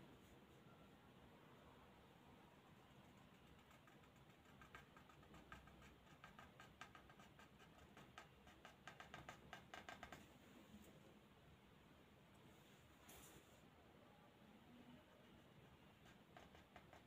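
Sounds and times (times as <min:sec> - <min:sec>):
pen nib scratching on paper: 0:02.9 - 0:10.3, 0:15.9 - 0:17.0.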